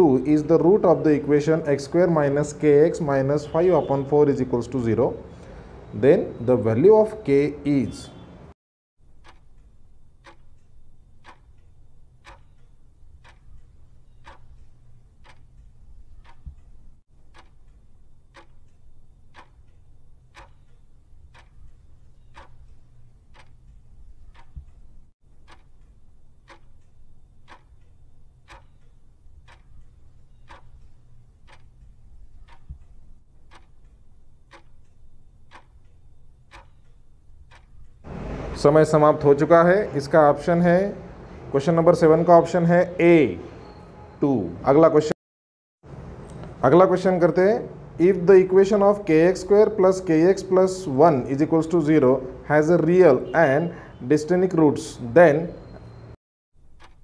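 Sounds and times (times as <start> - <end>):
clock ticking: 9.0 - 38.1, 52.6 - 53.0, 55.6 - 57.0.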